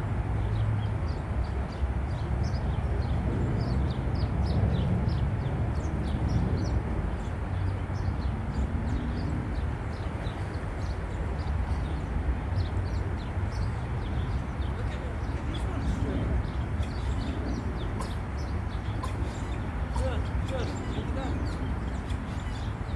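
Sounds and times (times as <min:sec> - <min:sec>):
small birds chirping: 0:00.4 - 0:22.9
steady low rumble: 0:08.2 - 0:22.9.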